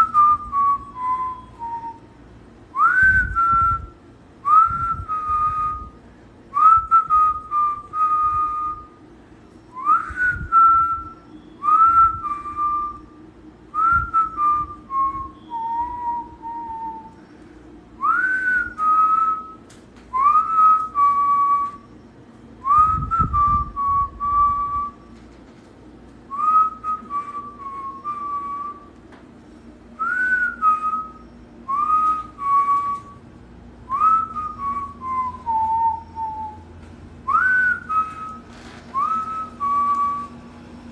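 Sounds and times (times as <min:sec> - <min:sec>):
person whistling a call: 0:00.0 - 0:02.1, 0:02.8 - 0:06.0, 0:09.8 - 0:13.1, 0:13.8 - 0:17.2, 0:18.0 - 0:21.9, 0:26.3 - 0:28.9, 0:30.0 - 0:33.2, 0:33.9 - 0:40.4.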